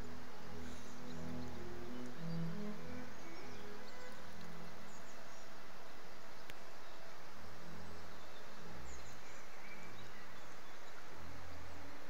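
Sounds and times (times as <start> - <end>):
low notes: 0.0 - 5.0
faint high bird chirps: 0.0 - 5.6
outdoor background noise: 0.0 - 12.0.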